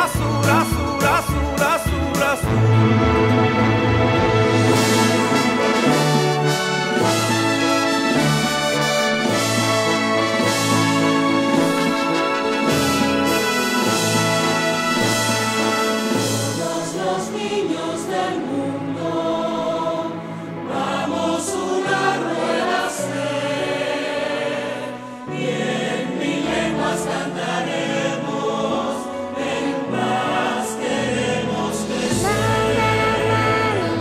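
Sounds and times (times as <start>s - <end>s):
instrumental accompaniment with bass line: 0.0s - 17.5s, 30.9s - 34.0s
choir singing: 0.0s - 34.0s.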